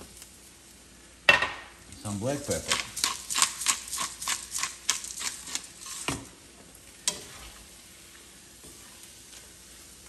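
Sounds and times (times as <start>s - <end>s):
faint sizzle from pan: 0.0s - 10.0s
pepper mill grinding: 2.4s - 6.2s.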